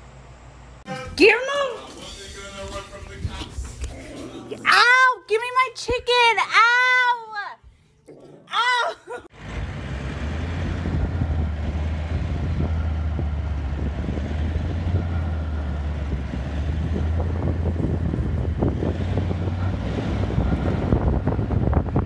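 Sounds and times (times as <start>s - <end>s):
vehicle engine rumbling: 9.3s - 22.0s
wind buffeting microphone: 10.4s - 22.0s.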